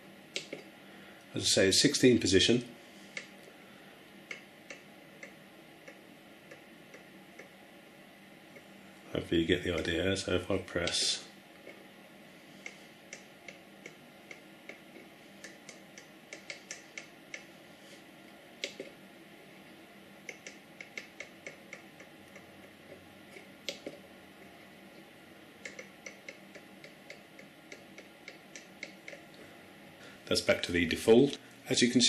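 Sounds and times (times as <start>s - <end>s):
rotary encoder detent clicks: 0.3s - 0.7s, 12.6s - 17.5s, 18.6s - 19.0s, 20.2s - 24.0s, 25.6s - 29.4s.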